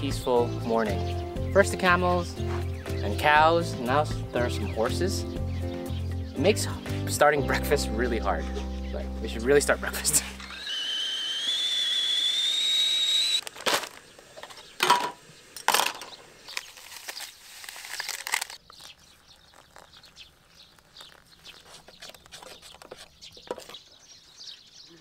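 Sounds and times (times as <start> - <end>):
kettle whistling: 10.4 - 13.5
packets being torn open: 16.5 - 22.5.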